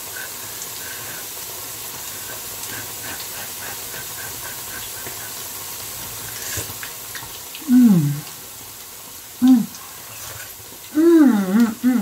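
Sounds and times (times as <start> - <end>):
sizzling oil with bubbling pops: 0.0 - 12.0.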